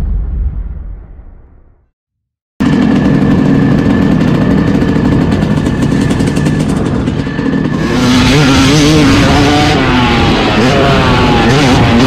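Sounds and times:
motocross engine revving: 2.6s - 12.0s.

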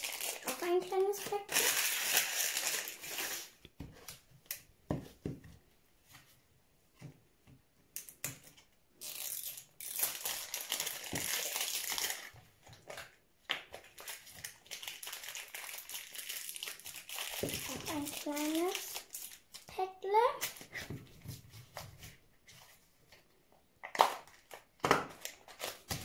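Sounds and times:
wrapper crinkling and rustling: 0.0s - 3.6s, 9.0s - 19.7s, 24.0s - 26.0s.

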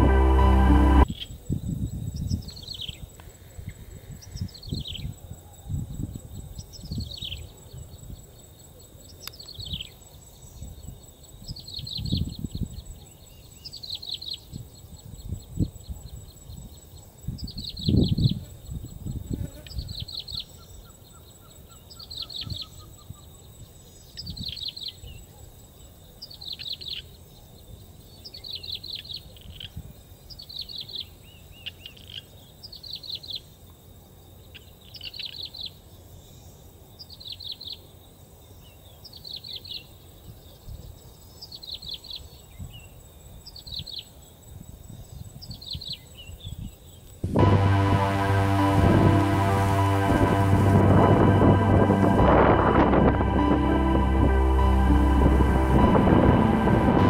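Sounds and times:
low thumps: 47.2s - 57.0s.

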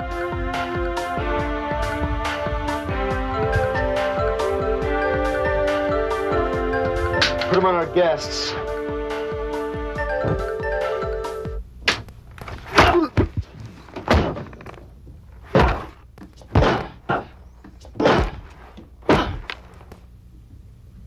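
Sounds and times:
tinkling music: 3.2s - 8.6s, 10.0s - 11.6s
thuds and rustles of clothing: 12.4s - 17.0s.

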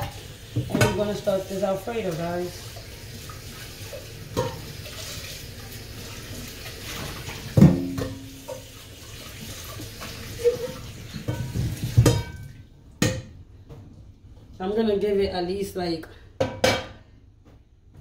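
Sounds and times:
pot clanking against sink: 0.0s - 1.3s, 4.3s - 4.7s, 7.0s - 8.8s, 10.4s - 13.4s.

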